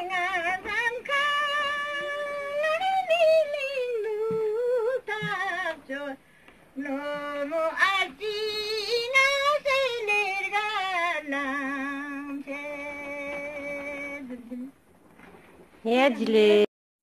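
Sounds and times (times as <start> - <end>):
elderly woman singing unaccompanied: 0.0 - 6.2, 6.8 - 14.8.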